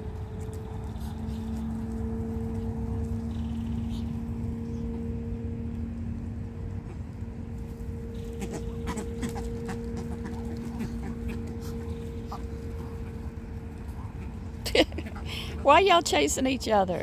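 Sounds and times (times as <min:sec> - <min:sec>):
low wind rumble: 0:00.0 - 0:17.0
steady hum: 0:00.0 - 0:17.0
birds clicking and calling: 0:00.2 - 0:04.4, 0:08.1 - 0:15.3.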